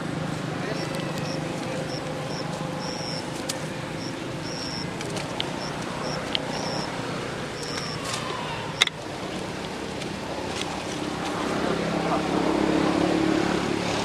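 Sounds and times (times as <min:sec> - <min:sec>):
steady background hum: 0:00.0 - 0:12.5
short high chirps: 0:00.8 - 0:03.3, 0:04.0 - 0:04.9, 0:05.6 - 0:06.9, 0:07.6 - 0:08.1.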